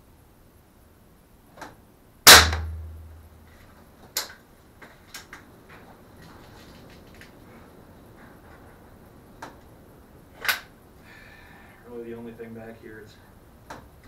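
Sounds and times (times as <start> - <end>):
air rifle firing: 2.3 - 3.1.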